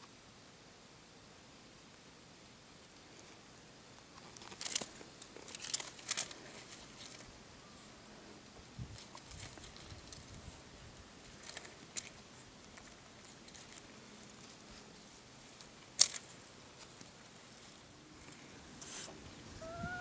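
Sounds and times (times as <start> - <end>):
small ticks: 2.9 - 7.3.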